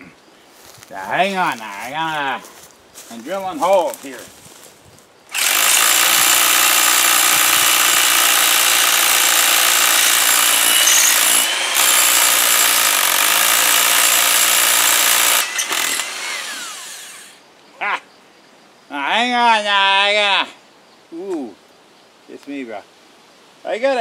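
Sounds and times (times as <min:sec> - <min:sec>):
rotary hammer drilling into stone: 0:05.3 - 0:17.4.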